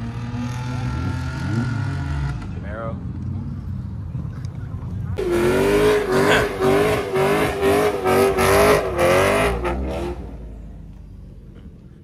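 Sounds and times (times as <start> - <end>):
car engine revving high: 5.2 - 10.5.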